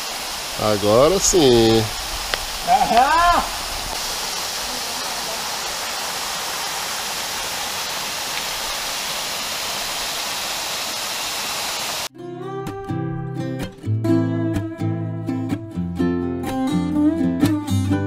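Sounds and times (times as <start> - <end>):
waterfall rushing: 0.0 - 12.1
acoustic guitar music: 12.1 - 18.0.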